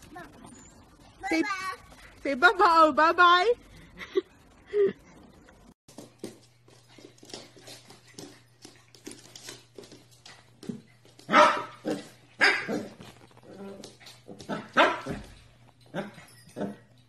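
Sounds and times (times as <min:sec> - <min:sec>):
taps and scuffles on hard floor: 0:05.9 - 0:15.5
puppy barking in high yips: 0:11.3 - 0:13.0.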